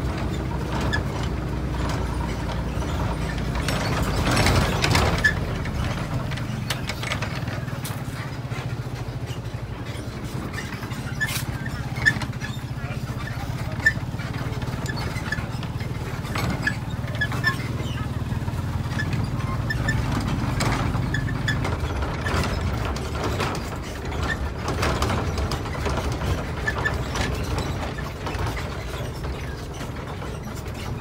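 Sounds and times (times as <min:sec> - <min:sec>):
rattling and clicking: 0:00.0 - 0:31.0.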